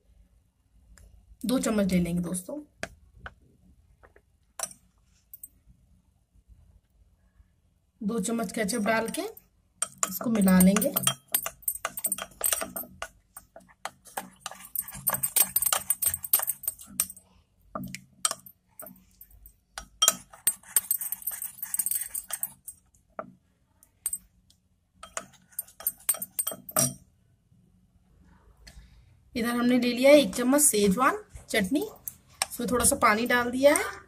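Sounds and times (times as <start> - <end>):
spoon clinking and scraping bowl: 8.8 - 17.2, 17.8 - 22.8, 25.0 - 27.0.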